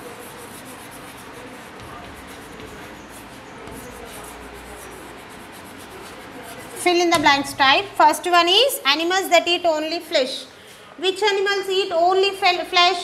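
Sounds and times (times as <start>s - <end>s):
chalk scratching on chalkboard: 0.0s - 8.0s
room noise: 0.0s - 13.0s.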